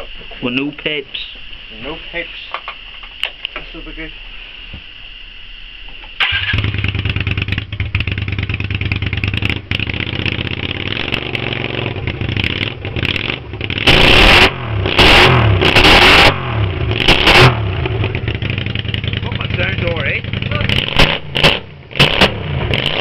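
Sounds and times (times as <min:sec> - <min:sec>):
motorcycle engine idling and revving: 0:06.2 - 0:23.0.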